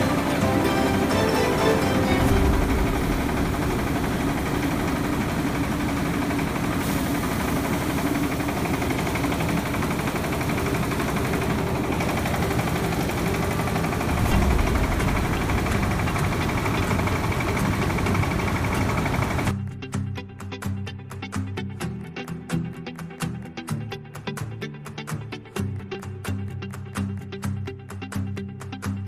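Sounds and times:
rice mill machinery drone: 0.0s - 19.6s.

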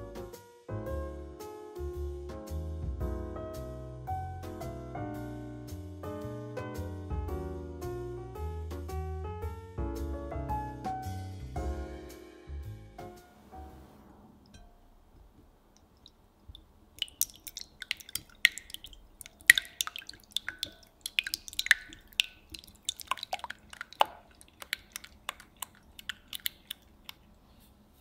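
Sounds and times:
whisk clinking against glass: 17.0s - 26.9s.

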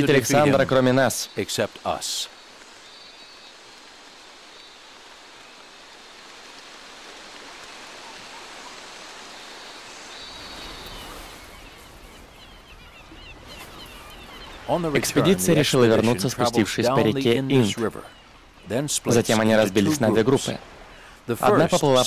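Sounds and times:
heavy rain hissing: 0.0s - 11.8s, 14.7s - 17.8s.

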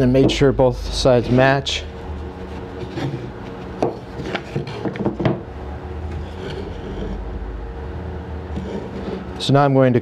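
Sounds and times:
steady low hum: 0.0s - 10.0s
wooden boards knocking: 3.8s - 5.4s.

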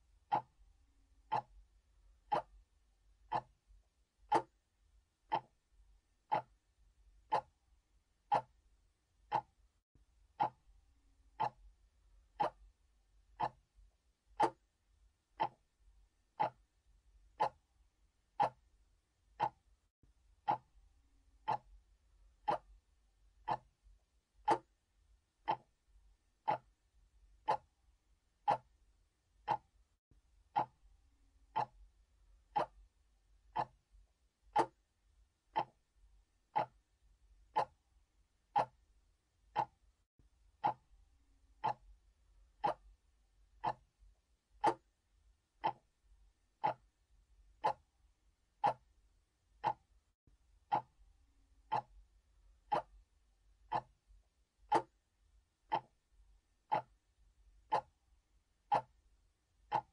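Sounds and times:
mechanical clock ticking: 0.3s - 0.6s, 1.2s - 1.6s, 2.2s - 2.6s, 3.3s - 3.6s, 4.2s - 4.6s, 5.3s - 5.6s, 6.3s - 6.6s, 7.2s - 7.6s, 8.2s - 8.6s, 9.2s - 9.6s, 10.3s - 10.7s, 11.3s - 11.7s, 12.4s - 12.8s, 13.4s - 13.7s, 14.3s - 14.7s, 15.4s - 15.7s, 16.4s - 16.7s, 17.3s - 17.7s, 18.3s - 18.7s, 19.3s - 19.7s, 20.4s - 20.8s, 21.4s - 21.8s, 22.4s - 22.8s, 23.4s - 23.8s, 24.4s - 24.8s, 25.4s - 25.8s, 26.4s - 26.8s, 27.4s - 27.8s, 28.4s - 28.8s, 29.4s - 29.8s, 30.5s - 30.8s, 31.5s - 31.9s, 32.5s - 32.9s, 33.5s - 33.8s, 34.5s - 34.8s, 35.5s - 35.9s, 36.5s - 36.9s, 37.5s - 37.8s, 38.5s - 38.9s, 39.5s - 39.8s, 40.6s - 40.9s, 41.6s - 42.0s, 42.6s - 43.0s, 43.6s - 43.9s, 44.6s - 44.9s, 45.6s - 46.0s, 46.6s - 47.0s, 47.6s - 47.9s, 48.6s - 48.9s, 49.6s - 49.9s, 50.7s - 51.0s, 51.6s - 52.0s, 52.7s - 53.0s, 53.7s - 54.0s, 54.7s - 55.0s, 55.7s - 56.0s, 56.7s - 57.0s, 57.7s - 58.0s, 58.7s - 59.0s, 59.7s - 59.9s.

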